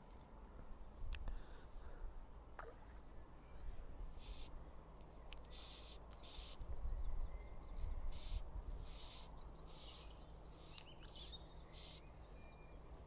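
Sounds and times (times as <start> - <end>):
small birds chirping: 3.3 - 13.0
wind rumble on microphone: 6.6 - 9.0.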